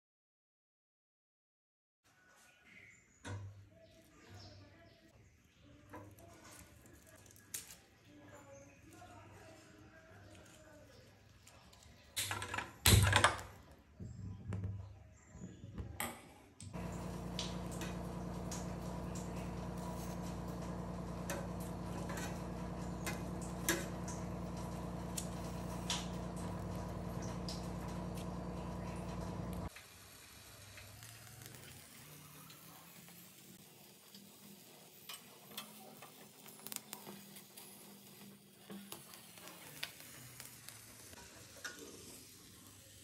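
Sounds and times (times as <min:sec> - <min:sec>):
low mechanical hum: 0:16.7 - 0:29.7.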